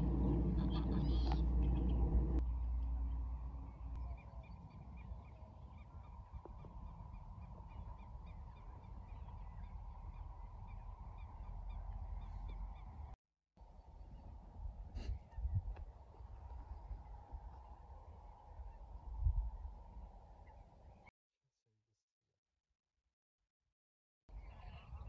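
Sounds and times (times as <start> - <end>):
birds calling: 0.0 - 2.4, 3.6 - 13.1
goose-like honking: 0.0 - 2.4, 24.4 - 25.0
steady low rumble: 0.0 - 20.9.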